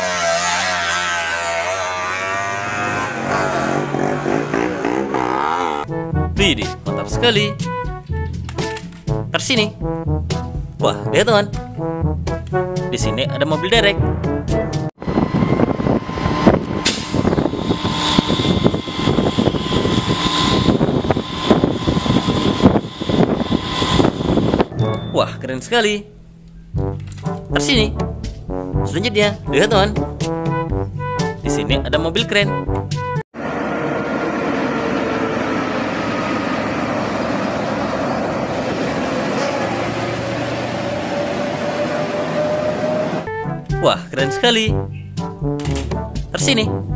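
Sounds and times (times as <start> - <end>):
tyre and road noise: 0.0 - 5.9, 15.0 - 25.1, 33.4 - 43.3
diesel truck engine running: 15.0 - 24.7, 33.4 - 43.3
thin steady whine: 15.0 - 24.8.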